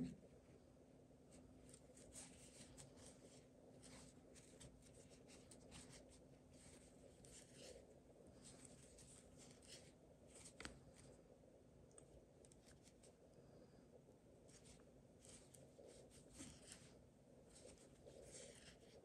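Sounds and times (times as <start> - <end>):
faint low hum: 0.0 - 19.0
yarn rustling through crochet stitches: 1.2 - 11.2, 14.4 - 19.0.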